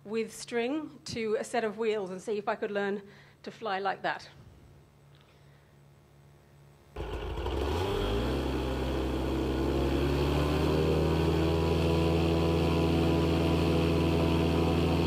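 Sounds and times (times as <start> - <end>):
paramotor engine running: 7.0 - 15.0.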